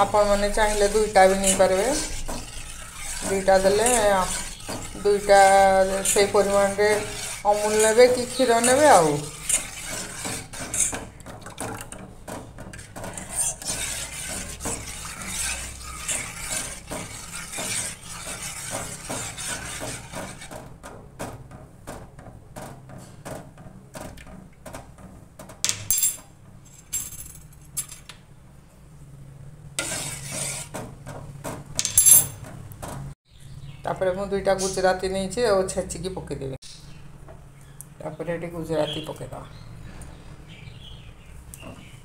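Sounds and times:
metal spoon stirring in saucepan: 0.0s - 20.8s, 29.8s - 31.0s.

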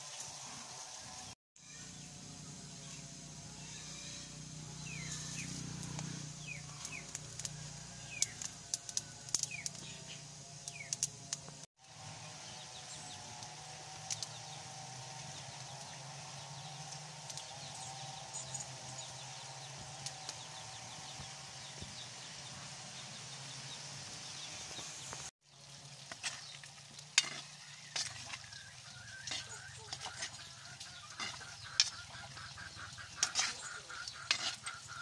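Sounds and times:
firewood crackling and popping: 5.8s - 11.7s, 13.1s - 15.9s, 25.0s - 30.3s
food simmering in a wok: 6.1s - 30.1s.

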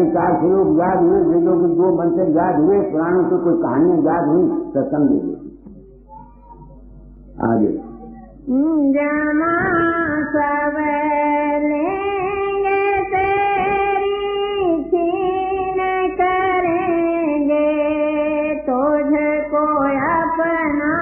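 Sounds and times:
person chanting a hymn: 0.0s - 4.8s.

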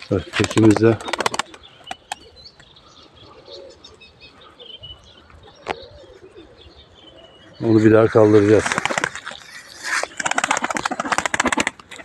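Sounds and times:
pigeons cooing: 0.0s - 12.0s
small birds chirping: 0.0s - 12.0s.

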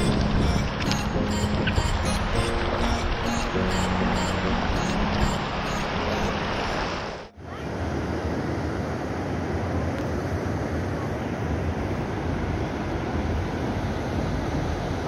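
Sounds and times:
background music: 0.0s - 6.6s.

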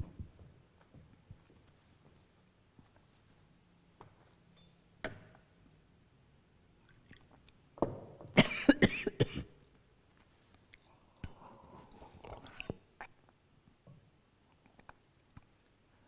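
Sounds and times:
person coughing hard: 8.4s - 9.6s.

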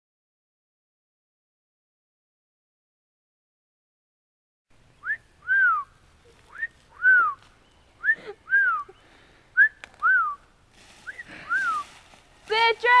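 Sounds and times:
person whistling two-note call: 6.5s - 7.4s.

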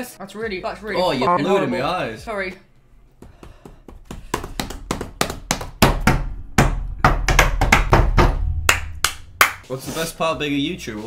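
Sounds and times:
thumps and taps: 3.2s - 8.4s.

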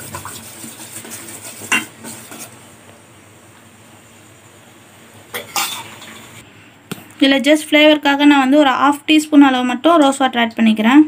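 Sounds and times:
spoon stirring in steel bowl: 0.0s - 2.6s.

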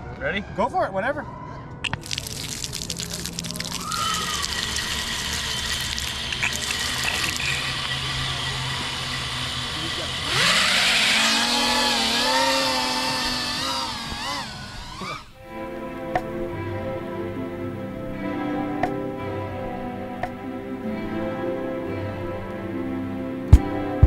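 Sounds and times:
quadcopter motors whining: 3.8s - 15.4s.

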